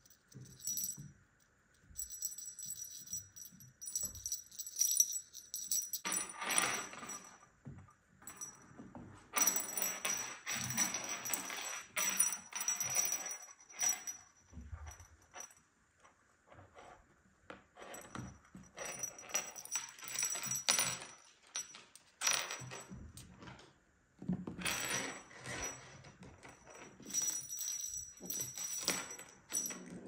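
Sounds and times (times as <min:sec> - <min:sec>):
small jingle bell jingling: 0:00.0 - 0:01.1, 0:01.7 - 0:07.4, 0:08.2 - 0:08.7, 0:09.4 - 0:15.5, 0:18.0 - 0:22.8, 0:26.7 - 0:30.0.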